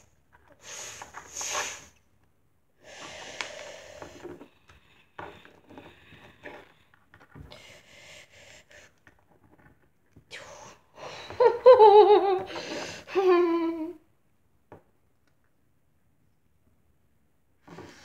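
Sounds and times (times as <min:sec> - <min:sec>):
breathy hissing mouth noises: 0:00.6 - 0:02.0, 0:02.8 - 0:04.5.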